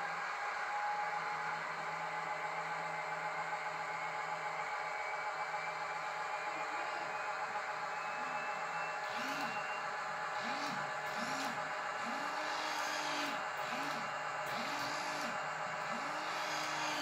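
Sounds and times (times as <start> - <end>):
model locomotive whirring: 6.6 - 17.0.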